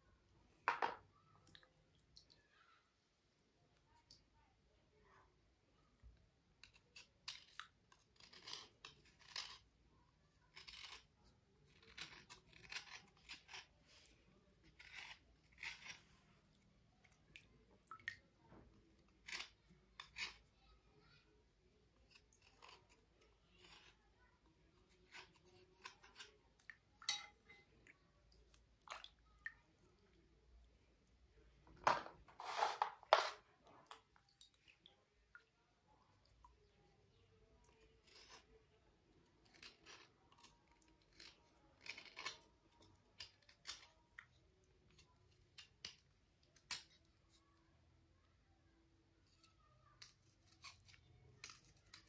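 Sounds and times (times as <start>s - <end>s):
scratching on slate: 14.7s - 16.1s, 31.8s - 33.4s.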